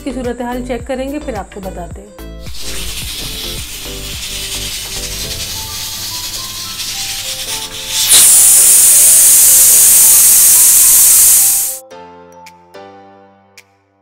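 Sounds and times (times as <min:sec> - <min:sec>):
pressure cooker steam hissing: 0:02.5 - 0:11.8
steam jet rushing out: 0:02.5 - 0:11.8.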